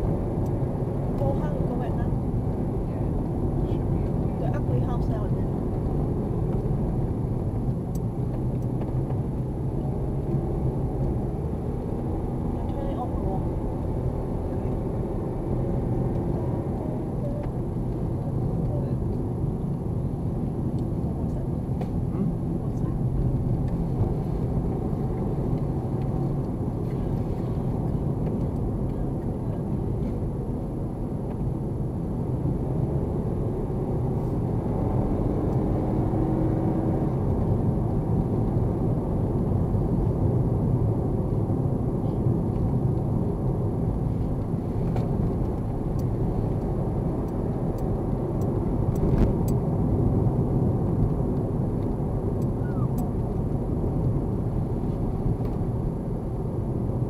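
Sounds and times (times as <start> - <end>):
tyre and engine rumble: 0.0 - 57.0.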